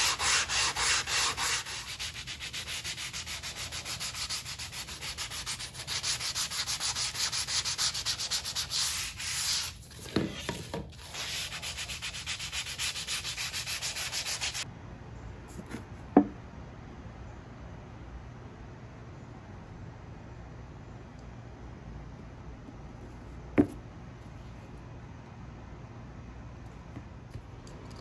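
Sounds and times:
sandpaper sanding wood: 0.0 - 14.6.

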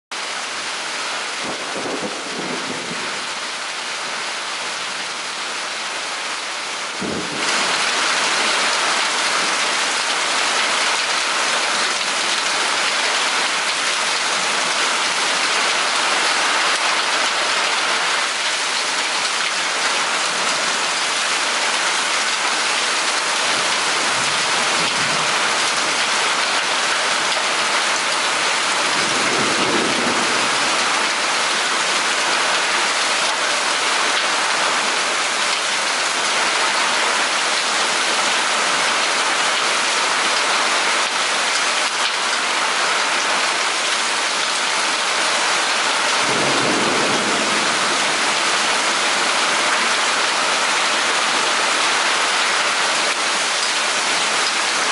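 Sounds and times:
steady rain: 0.1 - 54.9
faint low thunder rumbles: 46.3 - 49.5.

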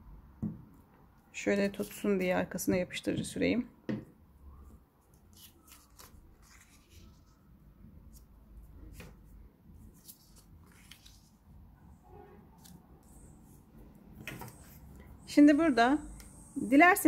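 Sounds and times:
paper rustling and crinkling: 5.0 - 7.5, 8.1 - 11.4.

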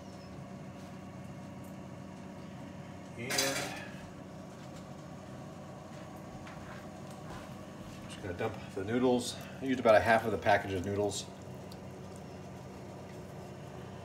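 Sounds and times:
steady low hum: 0.0 - 14.0
metal cookware clanking: 3.3 - 3.9.

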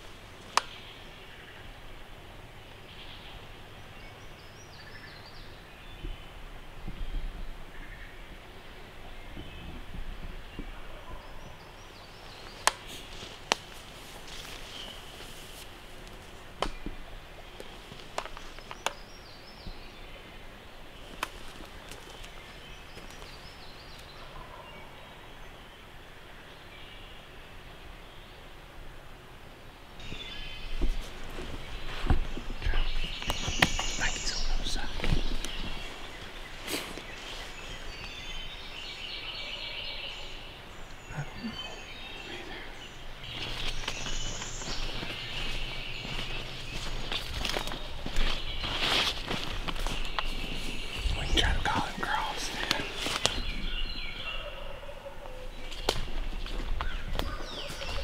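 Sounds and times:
outdoor background noise: 0.0 - 58.0
sharp snaps: 0.5 - 0.8, 12.6 - 12.9
turkey calls: 51.4 - 55.9.

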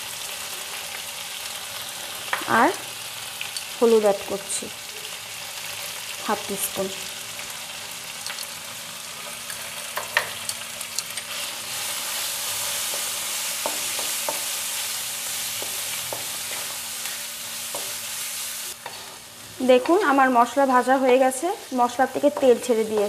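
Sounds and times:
spices sizzling in oil: 0.0 - 23.0
spatula scraping pan: 18.8 - 20.2.

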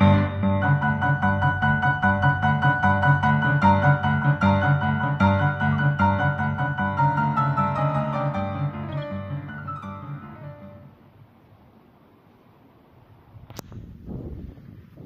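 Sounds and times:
piano music quick run: 0.0 - 10.9.

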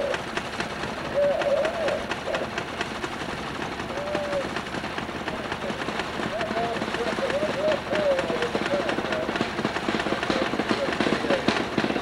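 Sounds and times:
small engine exhaust putts: 0.0 - 12.0.

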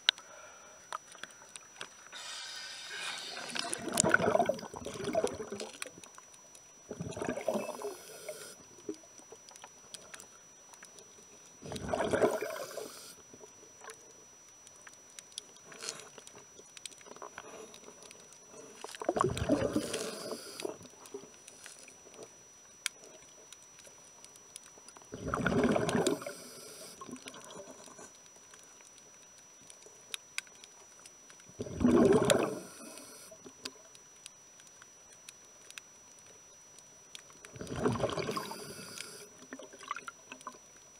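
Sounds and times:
exhaled breath bubbling underwater: 2.1 - 5.6, 6.9 - 8.6, 11.6 - 13.1, 19.1 - 20.8, 25.1 - 27.1, 31.6 - 33.3, 37.5 - 40.0.

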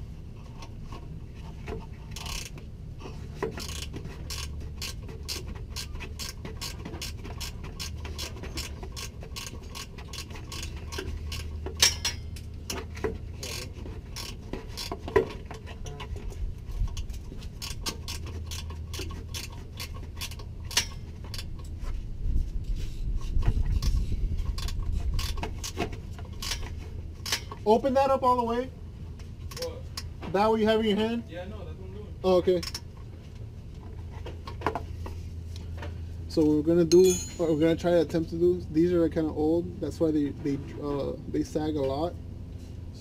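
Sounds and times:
hand ratchet clicking: 2.1 - 2.6, 3.5 - 12.2, 13.4 - 15.0, 16.9 - 21.7, 23.8 - 25.8
sharp metal knocks: 3.4 - 13.2, 36.9 - 37.9.

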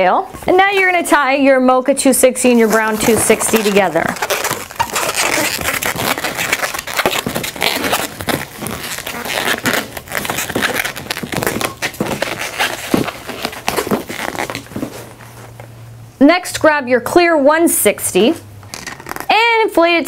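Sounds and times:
balloons rubbing and crackling: 2.3 - 15.7, 18.7 - 19.5.

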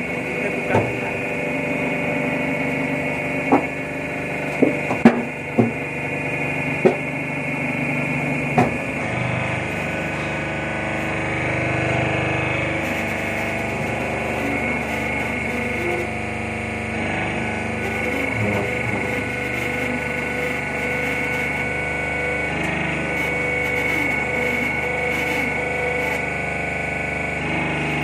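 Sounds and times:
deeper tone: 0.0 - 28.0
hydraulic press motor humming: 0.0 - 28.0.

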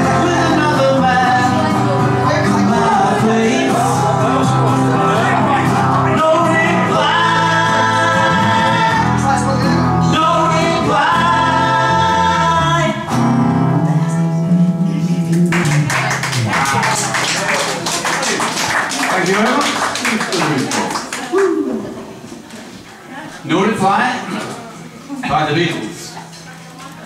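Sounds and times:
men singing together: 0.0 - 13.1
live band playing: 0.0 - 18.6
audience clapping: 15.3 - 21.6.

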